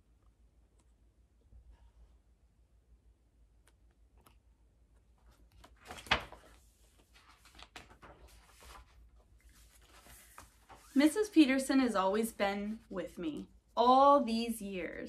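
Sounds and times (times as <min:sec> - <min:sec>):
book pages rustling: 0:04.2 - 0:11.6.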